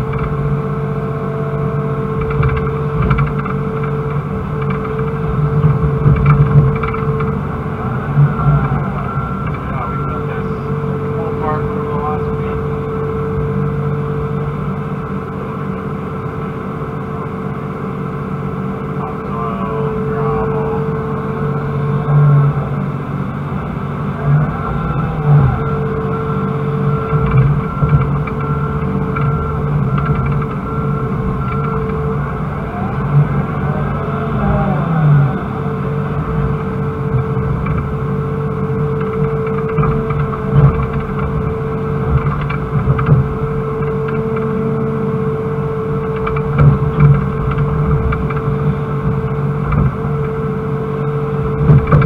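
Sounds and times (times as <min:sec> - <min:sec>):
excavator diesel engine: 0:00.0 - 0:52.0
hydraulic hum: 0:00.0 - 0:52.0
steady whine: 0:00.0 - 0:52.0.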